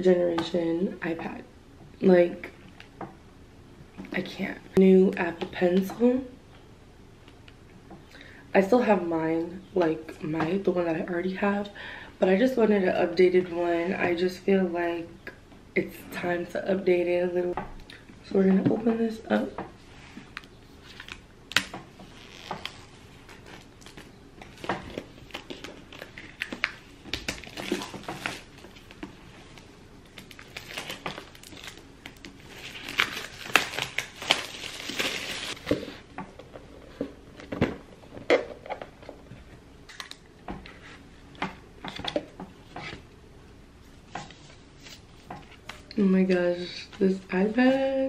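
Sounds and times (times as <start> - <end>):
plastic shrink wrap crinkling: 20.8 - 35.6.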